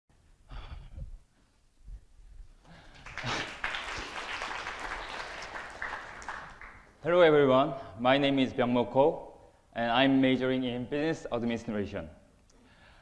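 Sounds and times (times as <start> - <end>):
audience applauding: 2.8 - 7.0.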